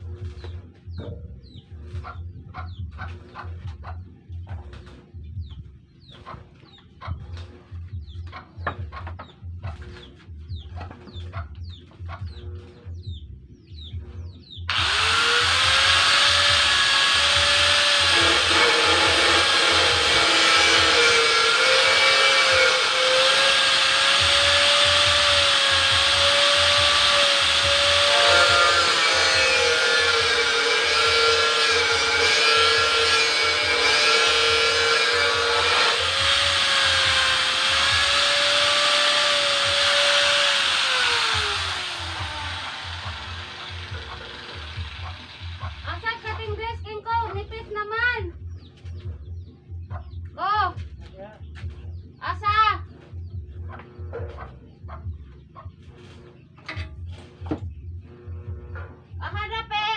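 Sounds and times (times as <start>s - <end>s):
angle grinder cutting metal: 14.7s - 46.2s.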